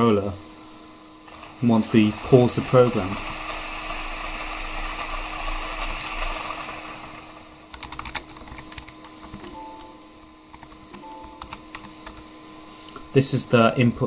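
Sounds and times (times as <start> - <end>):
steady hissing noise: 0.0 - 14.0
keyboard typing: 7.7 - 9.9, 10.5 - 12.2.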